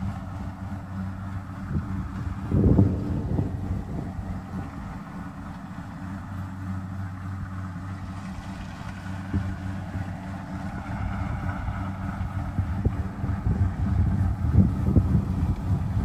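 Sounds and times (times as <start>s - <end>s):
diesel engine low hum: 0.0s - 16.0s.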